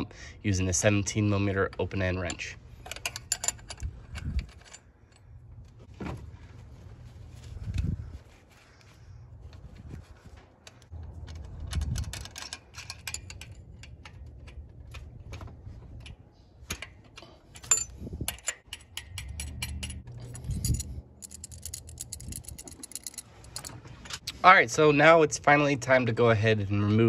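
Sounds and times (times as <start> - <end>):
wrench clinking on metal fittings: 1.6 - 5.4, 11.3 - 15.1, 16.0 - 24.2
metal jangling clatters: 2.3 - 5.4, 17.5 - 24.2.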